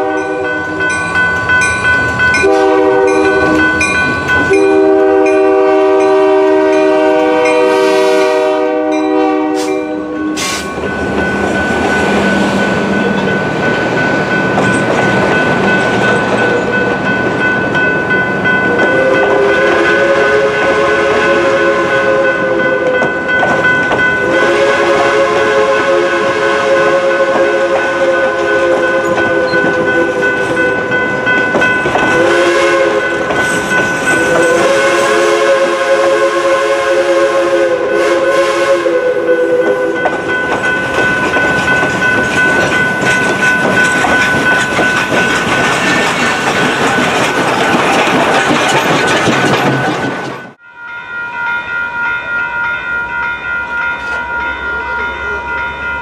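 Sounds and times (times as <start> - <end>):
steam locomotive whistle: 0.0 - 0.9, 2.3 - 10.8, 18.6 - 23.2, 24.2 - 31.0, 32.0 - 40.3
crossing warning bell ringing: 0.0 - 56.0
train wheels clicking over rail joints: 10.4 - 19.5, 22.8 - 24.3, 28.7 - 32.4, 33.0 - 34.7, 40.0 - 50.6.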